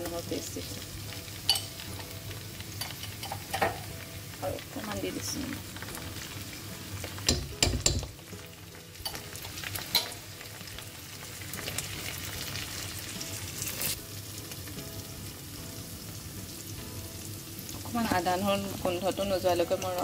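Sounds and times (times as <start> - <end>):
onions sizzling in hot oil: 0.0 - 20.0
metal utensil knocking on pot: 7.2 - 8.2.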